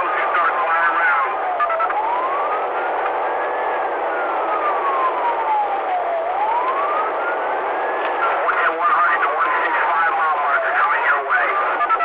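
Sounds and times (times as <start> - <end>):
car road noise at highway speed: 0.0 - 12.0
police siren wailing: 0.0 - 12.0.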